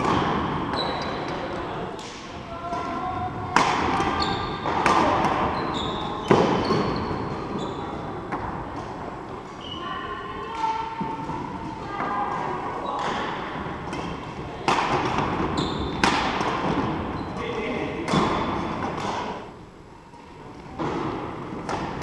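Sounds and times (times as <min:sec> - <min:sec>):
shoe squeaks: 0:00.7 - 0:01.3, 0:04.1 - 0:04.7, 0:05.5 - 0:08.0, 0:09.6 - 0:10.0, 0:15.6 - 0:16.0
rackets hitting shuttlecock: 0:02.0 - 0:05.6, 0:13.9 - 0:17.0, 0:20.8 - 0:22.0.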